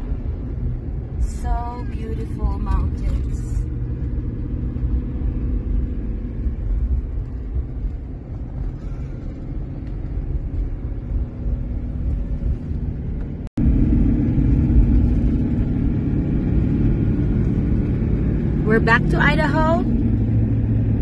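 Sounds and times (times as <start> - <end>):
road and engine rumble in car cabin: 0.0 - 21.0.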